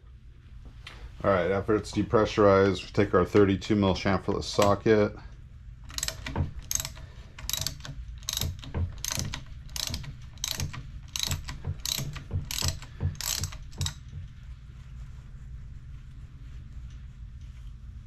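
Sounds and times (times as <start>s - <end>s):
ratchet clicking: 5.9s - 14.1s.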